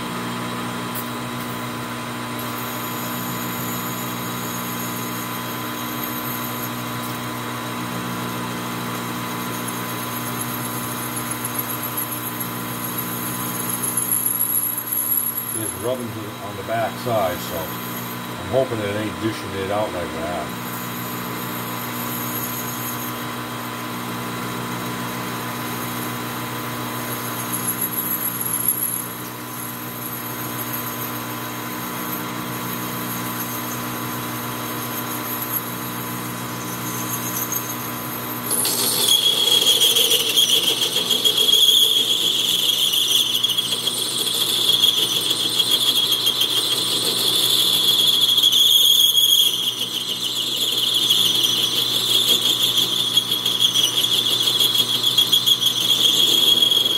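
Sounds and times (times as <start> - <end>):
high-pitched tool squeal: 13.4 - 20.9, 36.6 - 56.9
metal lathe running: 36.9 - 56.9.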